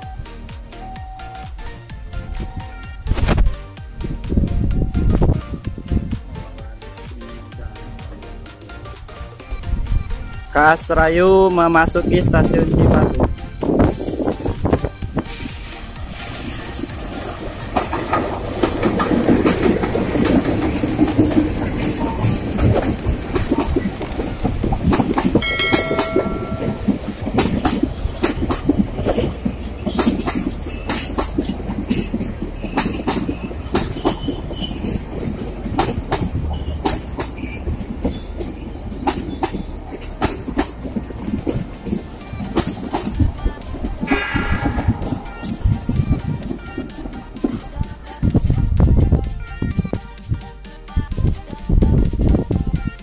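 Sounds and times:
locomotive engines humming: 0.0 - 50.6
train low rumble: 0.0 - 53.0
wheels clacking over rail joints: 15.9 - 48.5.

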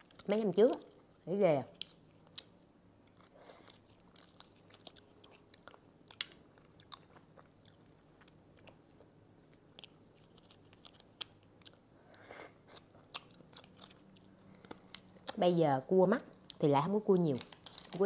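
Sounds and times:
chewing and sucking: 3.1 - 15.1.

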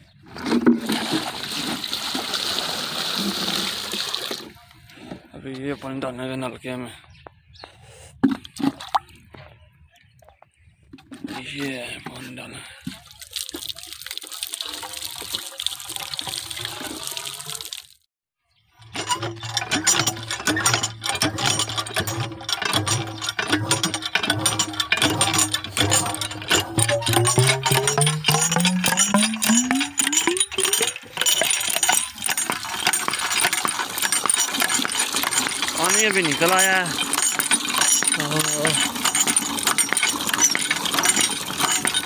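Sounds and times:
water splashing at hand pump: 0.3 - 4.6, 8.2 - 9.3, 10.9 - 18.0, 18.8 - 42.0
water gushing into plastic bucket: 0.4 - 4.6, 11.4 - 18.1, 21.5 - 42.0
metallic pump clanking: 18.8 - 42.0.

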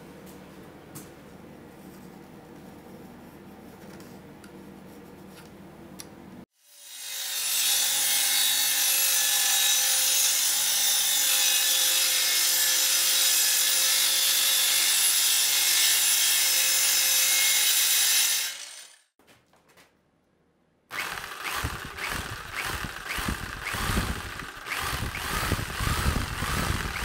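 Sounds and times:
circular saw cutting plywood: 6.6 - 19.0, 20.9 - 27.0.

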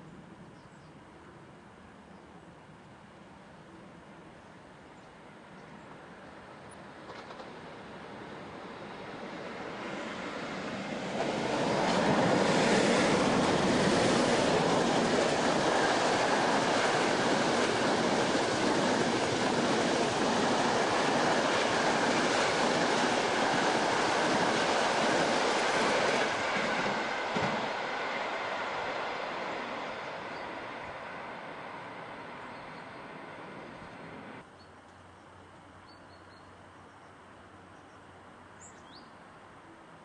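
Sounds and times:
train wheels rumbling on rails: 7.0 - 34.4.

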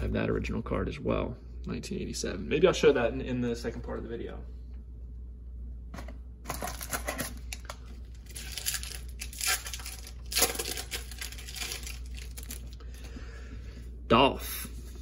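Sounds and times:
card pack wrapper crinkling: 6.5 - 12.8
wrapper tearing: 6.5 - 12.8.

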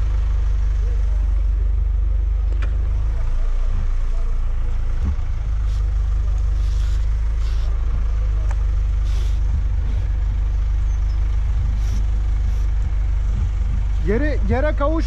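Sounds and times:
truck engine rumbling: 0.0 - 15.0
short hisses: 5.6 - 7.8, 9.0 - 10.2, 11.7 - 12.8.

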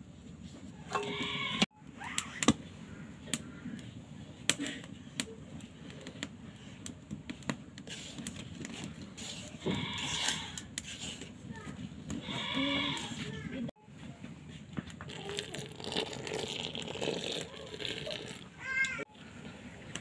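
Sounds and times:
hands mixing dry flour in bowl: 5.5 - 13.7.

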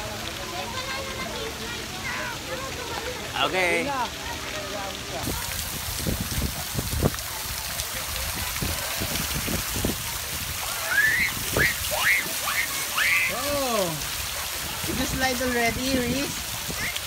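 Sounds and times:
water rushing and splashing: 0.0 - 17.0
child calling out: 10.9 - 13.9.

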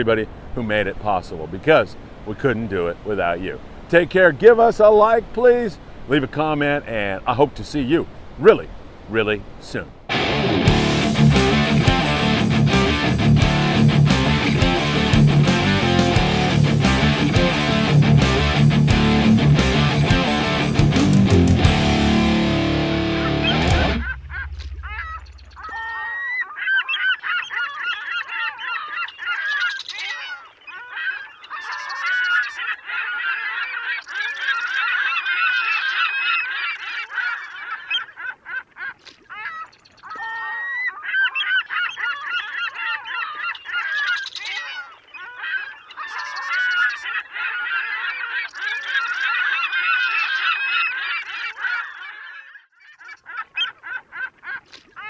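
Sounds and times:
flock of birds honking: 22.8 - 55.0.

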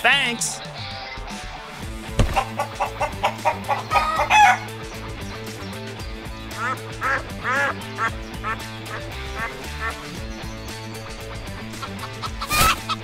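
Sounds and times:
background music: 0.0 - 13.0
chicken clucking and squawking: 2.3 - 4.7, 6.6 - 10.1, 11.7 - 13.0
duck quacks: 2.4 - 4.6, 6.5 - 10.1, 11.8 - 13.0.

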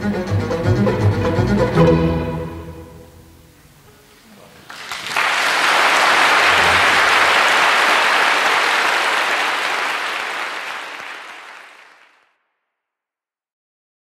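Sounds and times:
audience applauding: 4.6 - 12.3.

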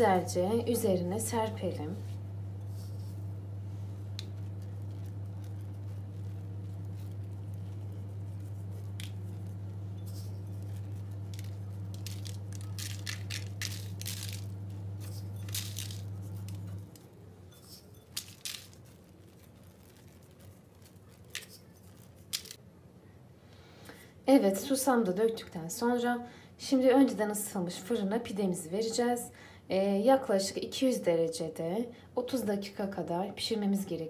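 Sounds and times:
steady low hum: 0.0 - 24.3
seeds pattering onto dough: 1.4 - 22.6.

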